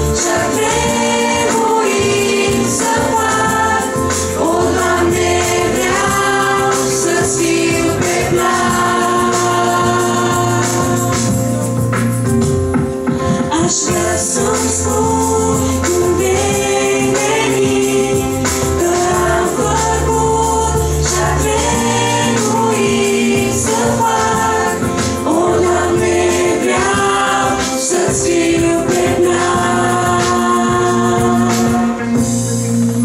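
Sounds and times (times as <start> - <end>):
light percussion: 0.0 - 33.0
woman singing into a microphone: 13.3 - 24.8.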